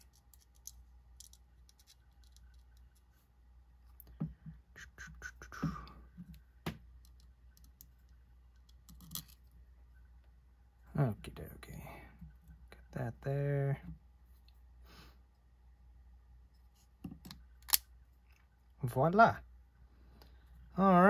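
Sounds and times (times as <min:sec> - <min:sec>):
small metal parts clicking: 0:00.0 - 0:03.0, 0:07.0 - 0:09.5.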